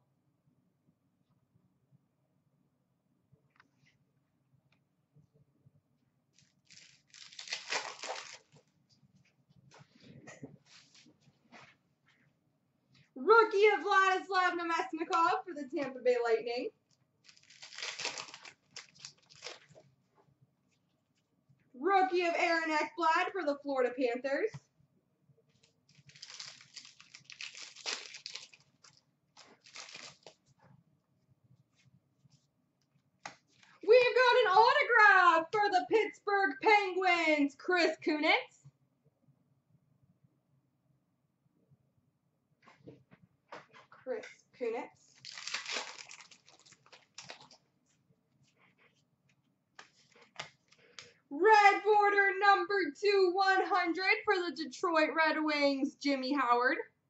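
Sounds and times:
trading cards rustling: 6.4s - 8.6s, 17.2s - 19.8s, 25.9s - 30.4s, 45.2s - 47.6s
foil wrapper crinkling and tearing: 6.4s - 8.7s, 17.2s - 19.8s, 25.6s - 30.4s, 45.1s - 47.6s.

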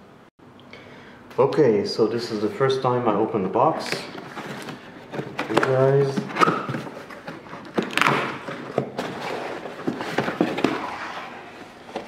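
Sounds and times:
cardboard scraping and knocking: 4.2s - 12.0s.

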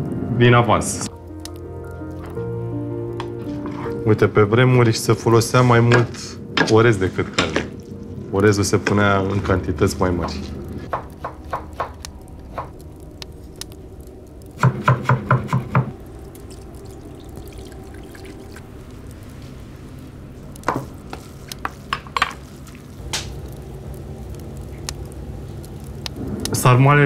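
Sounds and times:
low steady hum: 0.0s - 14.8s, 15.4s - 27.0s
wood fire crackling: 0.0s - 27.0s.

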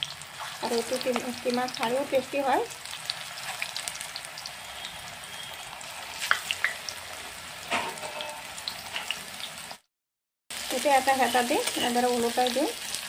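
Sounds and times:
patties sizzling in oil: 0.0s - 9.9s, 10.5s - 13.0s.

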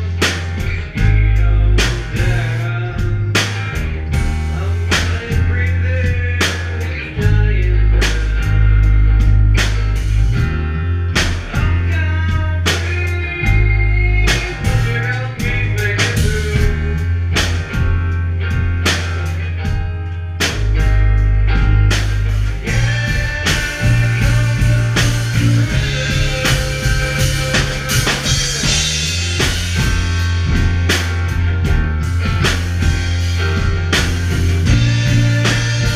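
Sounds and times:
bass guitar low notes: 0.0s - 35.9s
electric guitar: 0.0s - 35.9s
drum kit hits: 14.3s - 35.9s.

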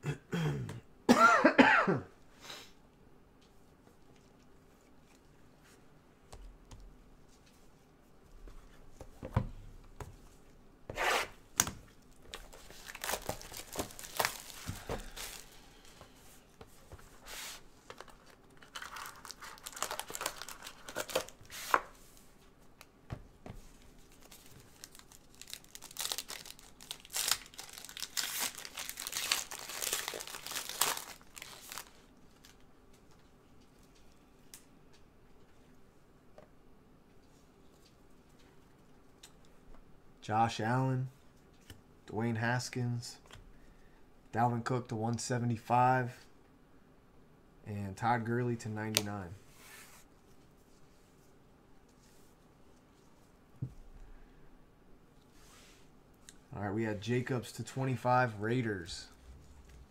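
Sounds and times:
packaging tearing and crinkling: 12.3s - 15.6s, 17.9s - 21.8s, 24.1s - 32.6s.

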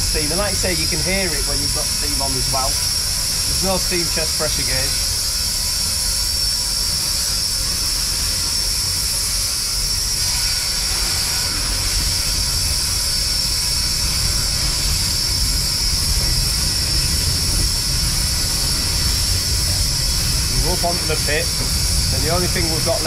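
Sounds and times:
steam hissing: 0.0s - 23.0s
low rumble: 14.0s - 23.0s.

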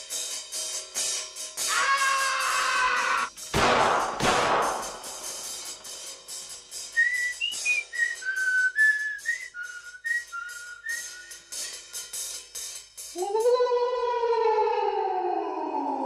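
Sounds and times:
cymbal-like ticking beat: 3.3s - 7.9s, 11.0s - 13.2s
whistled melody: 6.8s - 12.2s.

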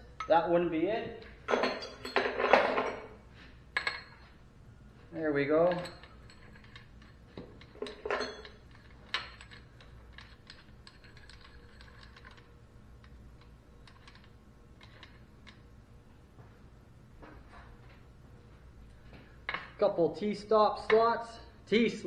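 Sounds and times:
metal studs clicking in nuts: 5.6s - 15.6s.

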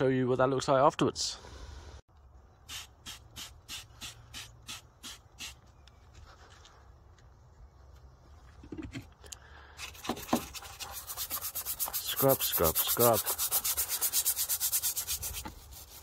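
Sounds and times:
brush scrubbing plastic: 9.8s - 16.0s.

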